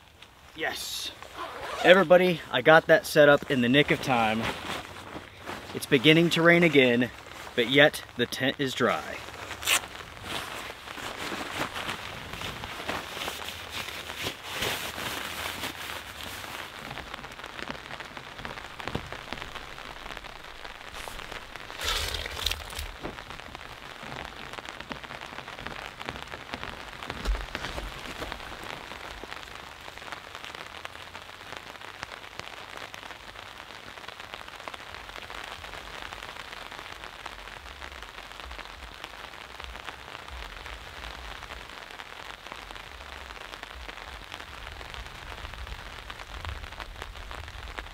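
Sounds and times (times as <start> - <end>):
steady rain in forest: 0.0 - 47.9
rain pants rustling: 0.1 - 29.4.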